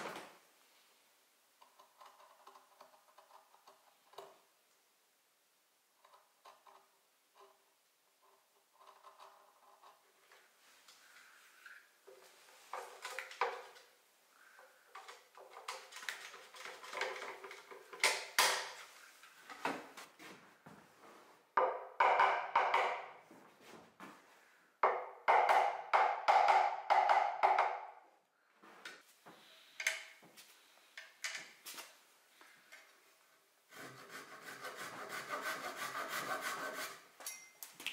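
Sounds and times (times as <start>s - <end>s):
sharp wooden taps and knocks: 21.6s - 23.1s
wood scraping or sawing: 33.7s - 37.1s.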